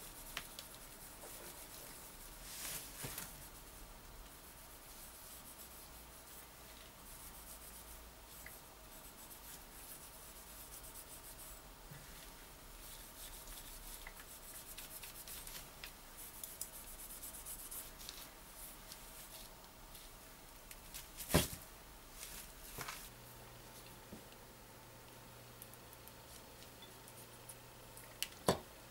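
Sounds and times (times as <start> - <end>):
cloth rubbing on metal: 0.0 - 20.2.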